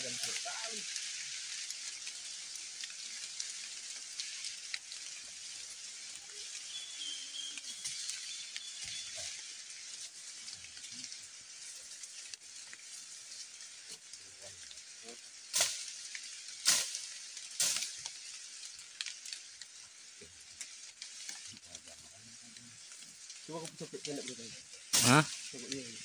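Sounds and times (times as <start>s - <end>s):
insects hissing: 0.0s - 26.0s.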